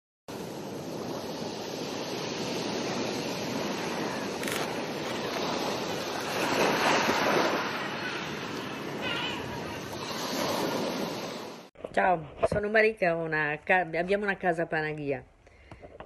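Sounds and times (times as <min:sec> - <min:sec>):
sea waves washing on shore: 0:00.3 - 0:11.7.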